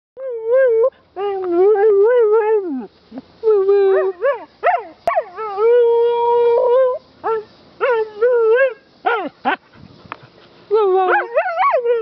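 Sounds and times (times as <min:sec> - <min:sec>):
dog yelping: 0:11.1 - 0:12.0.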